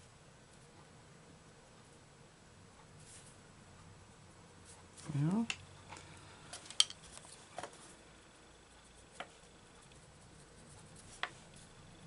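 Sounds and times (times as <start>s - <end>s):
pencil tapping on paper: 9.1s - 9.4s, 11.0s - 11.4s.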